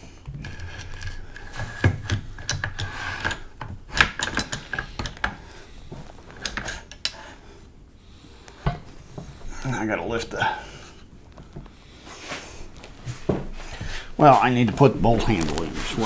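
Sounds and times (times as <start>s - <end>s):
metal parts clicking and clinking: 2.0s - 5.4s, 6.4s - 7.2s.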